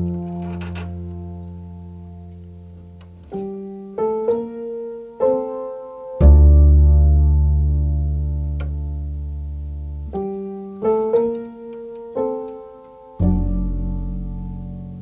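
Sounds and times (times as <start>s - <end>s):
double bass: 0.0s - 4.0s, 6.1s - 11.3s, 13.2s - 15.0s
upright piano chords: 0.0s - 15.0s.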